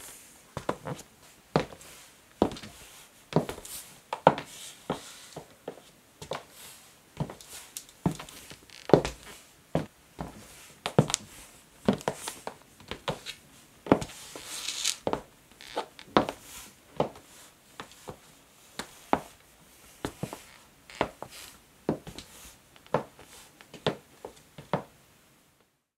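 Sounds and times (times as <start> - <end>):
scuffing hiss: 9.1 - 15.3.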